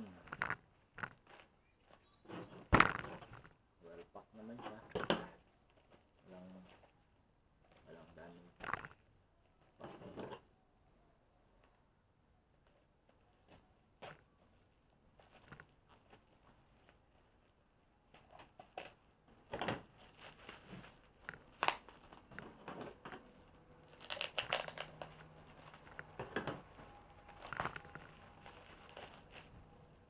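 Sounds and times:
bubble wrap crinkling: 0:19.8 - 0:30.0.

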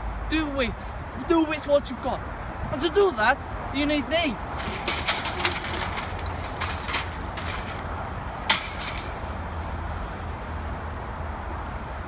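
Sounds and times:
shopping trolley rattling: 0:04.6 - 0:07.9, 0:08.5 - 0:09.3.

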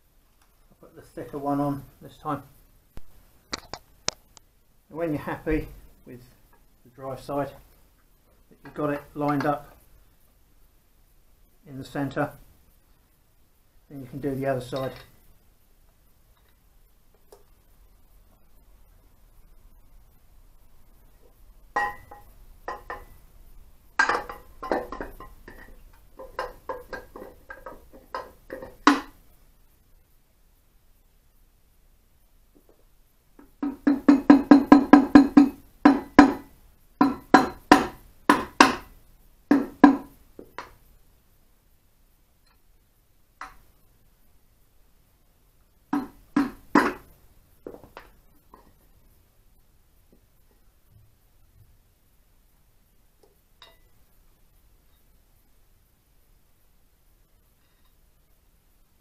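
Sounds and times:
mallet tapping metal casing: 0:21.8 - 0:23.2, 0:24.0 - 0:29.1, 0:33.4 - 0:38.9, 0:39.5 - 0:40.8, 0:45.9 - 0:47.1.

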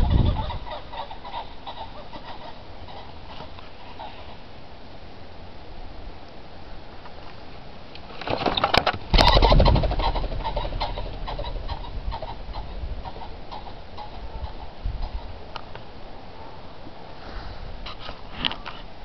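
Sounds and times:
pheasant wingbeats whirring: 0:08.2 - 0:15.4.

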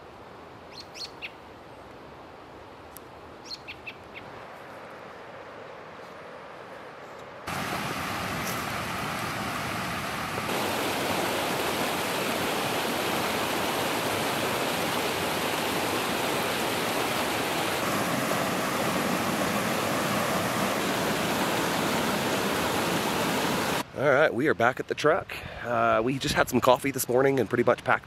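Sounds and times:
creek rushing over rocks: 0:07.5 - 0:23.9.

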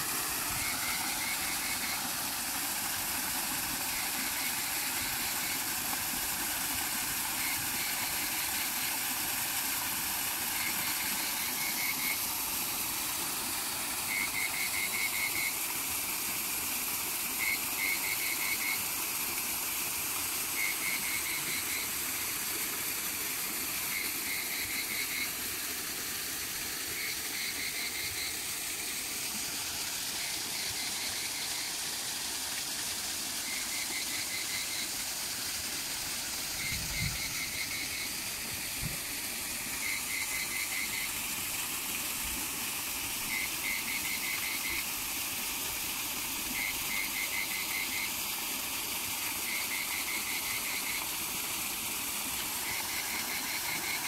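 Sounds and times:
frogs croaking: 0:00.0 - 0:12.8, 0:36.3 - 0:41.2, 0:49.4 - 0:51.2, 0:52.0 - 0:54.0
small waterfall rushing: 0:00.0 - 0:54.0.

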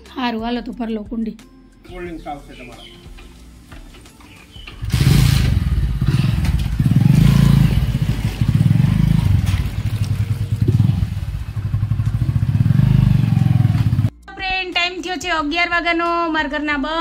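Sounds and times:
motorcycle engine starting and revving: 0:03.1 - 0:14.1.

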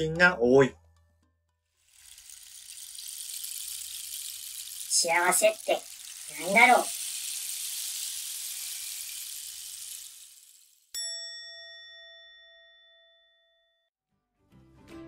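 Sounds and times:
rain hissing: 0:01.8 - 0:10.9
bowl bell ringing: 0:10.9 - 0:13.8.

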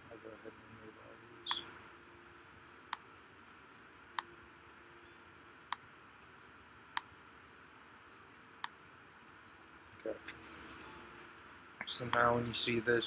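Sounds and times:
faint hiss: 0:07.3 - 0:13.0.

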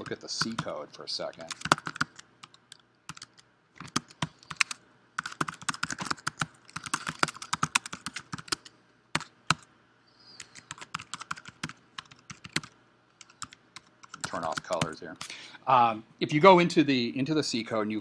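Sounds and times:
typing on computer keyboard: 0:01.3 - 0:09.7, 0:10.4 - 0:15.0.

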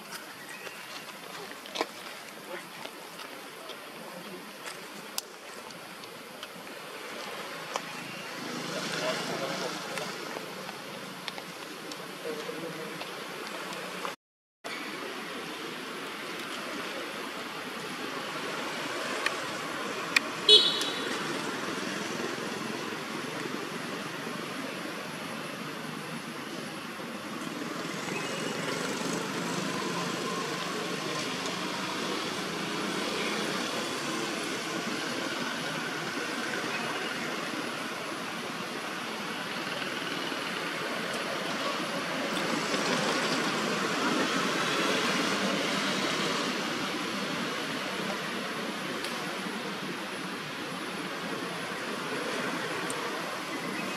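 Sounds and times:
road traffic noise: 0:00.0 - 0:53.9.

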